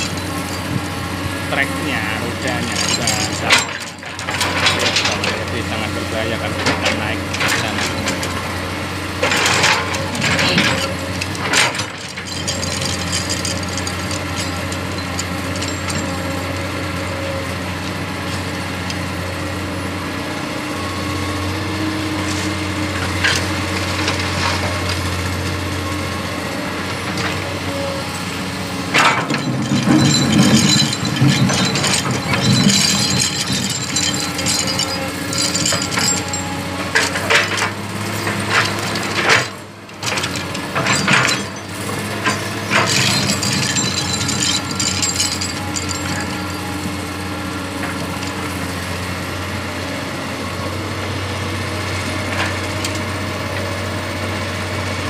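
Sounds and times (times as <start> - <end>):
excavator diesel engine running: 0.0 - 55.0
rattling and clattering rock: 1.6 - 8.5, 9.2 - 16.4, 28.8 - 47.0.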